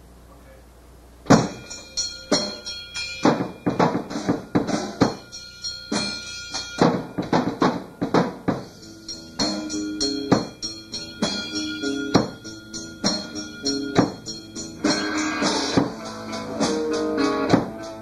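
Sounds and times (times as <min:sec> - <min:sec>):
drum kit with pads: 0:01.2 - 0:18.0
cymbal crashes: 0:01.3 - 0:17.7
band backing track: 0:05.9 - 0:18.0
bass and guitar notes: 0:05.9 - 0:18.0.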